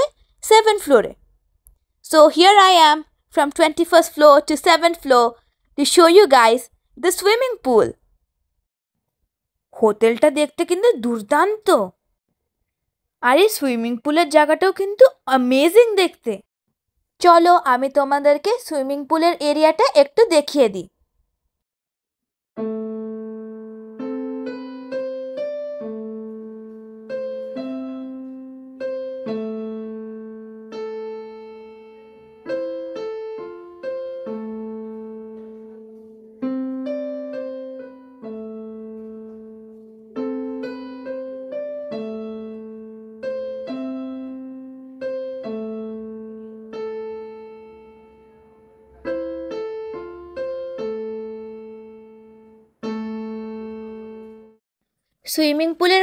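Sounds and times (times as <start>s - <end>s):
slow solo piano music: 22.6s - 54.6s.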